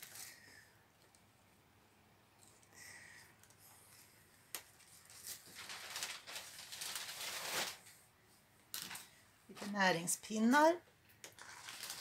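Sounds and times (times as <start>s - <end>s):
paper packaging rustling: 4.6s - 8.0s, 8.7s - 9.1s, 11.3s - 12.0s.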